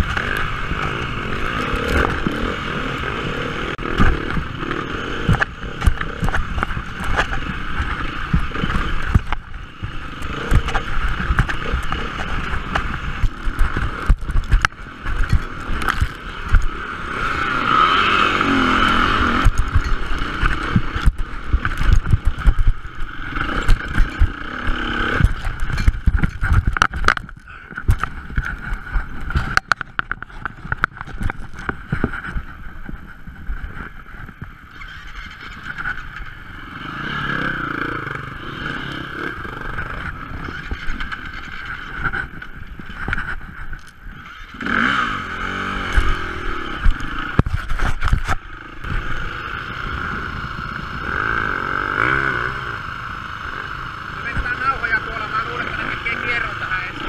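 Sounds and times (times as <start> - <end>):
motorcycle engine revving: 0.0 - 57.0
bike knocks and rattles: 3.8 - 17.7, 18.4 - 36.2, 45.9 - 48.9.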